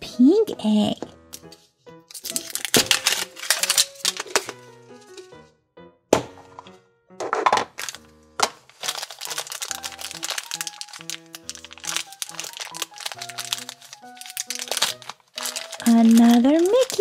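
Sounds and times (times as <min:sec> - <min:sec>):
light background music: 0:00.0 - 0:17.0
plastic egg clicks and knocks: 0:02.1 - 0:04.6
tissue paper crinkling: 0:02.1 - 0:05.3, 0:07.8 - 0:17.0.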